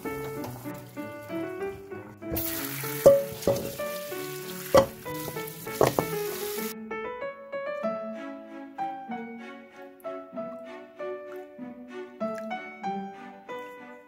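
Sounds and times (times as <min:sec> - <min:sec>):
tap water running: 0:00.0 - 0:06.7
background music: 0:00.0 - 0:14.0
sharp knocks: 0:04.8 - 0:05.1, 0:05.8 - 0:06.2.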